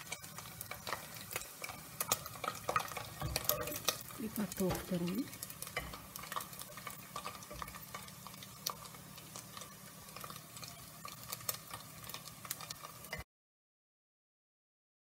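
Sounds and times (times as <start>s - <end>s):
metal spoon clinking on pot: 0.0s - 8.1s
oil sizzling: 0.0s - 13.3s.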